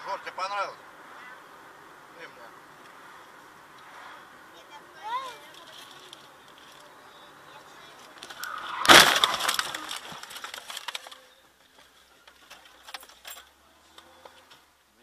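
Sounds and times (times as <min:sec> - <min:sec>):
debris rattling and clattering: 0:08.2 - 0:11.4
loud car crash: 0:08.3 - 0:11.1.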